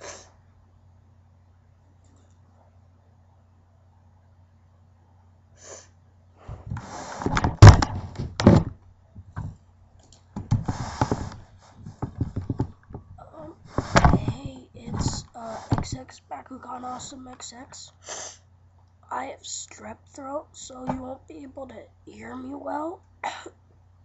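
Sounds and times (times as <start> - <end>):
microphone handling rustling: 6.4 - 9.6, 10.4 - 16.1.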